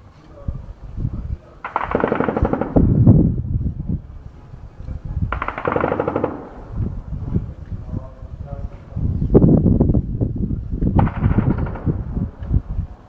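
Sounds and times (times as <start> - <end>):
automatic gunfire bursts: 1.6 - 2.9, 5.3 - 6.7, 11.0 - 12.0
deep rumble: 2.4 - 5.4, 6.3 - 13.0.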